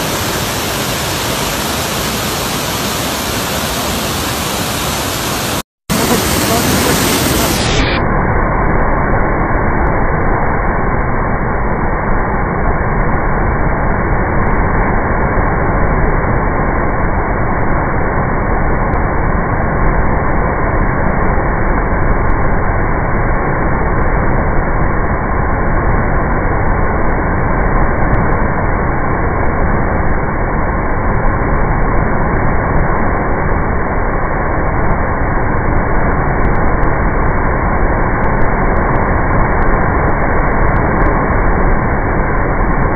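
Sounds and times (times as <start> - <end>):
rushing floodwater: 0.0 - 8.0.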